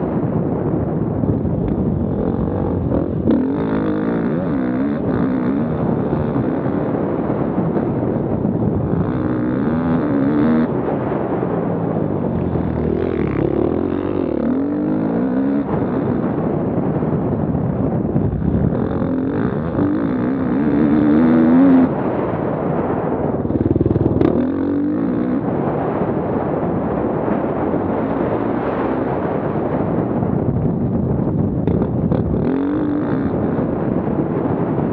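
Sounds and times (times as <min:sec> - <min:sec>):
dirt bike engine revving: 0:01.8 - 0:17.2, 0:18.2 - 0:22.4, 0:23.4 - 0:26.0, 0:31.7 - 0:34.0.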